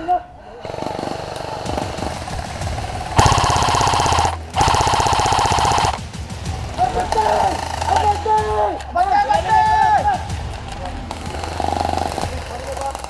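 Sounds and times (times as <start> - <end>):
airsoft rifle rapid firing: 0.6 - 8.6, 10.5 - 13.0.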